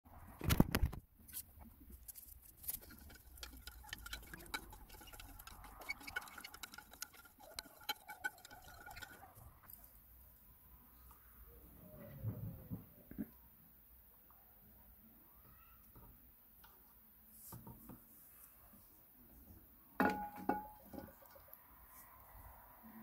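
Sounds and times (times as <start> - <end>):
metal spoon clinking glass bowl: 2.7 - 9.3.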